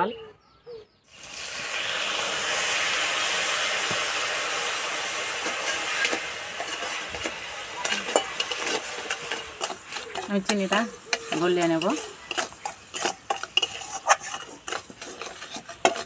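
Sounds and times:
water sizzling in hot pan: 0:01.1 - 0:16.0
metal spatula scraping pan: 0:05.0 - 0:16.0.

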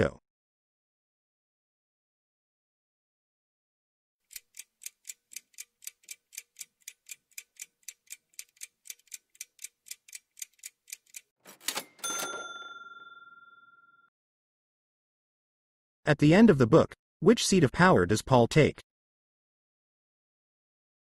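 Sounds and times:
clock ticking: 0:04.3 - 0:11.8
ding ringing out: 0:11.7 - 0:14.1.

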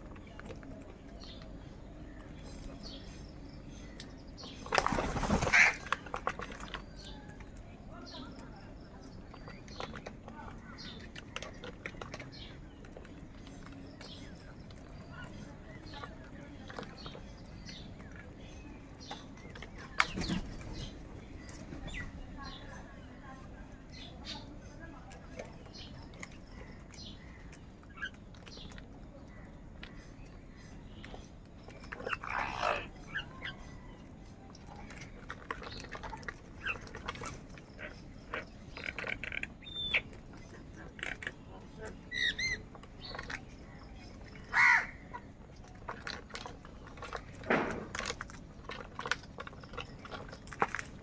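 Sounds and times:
birds chirping: 0:00.0 - 0:51.0
crows cawing: 0:44.5 - 0:45.0.

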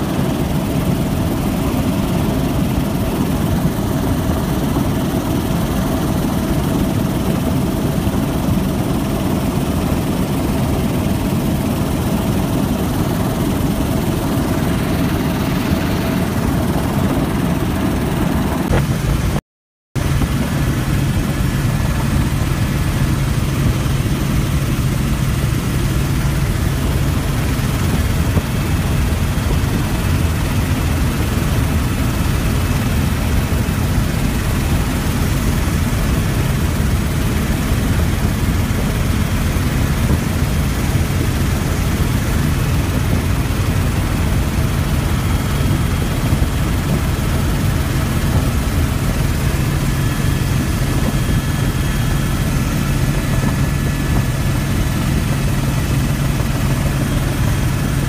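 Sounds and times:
helicopter engine and rotor drone: 0:00.0 - 0:19.4, 0:20.0 - 0:58.0
constant low hum: 0:20.0 - 0:58.0.

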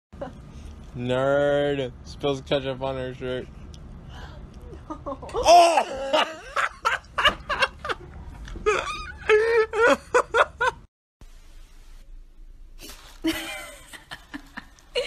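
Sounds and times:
person laughing in breathy bursts: 0:04.9 - 0:10.8, 0:13.2 - 0:15.0.

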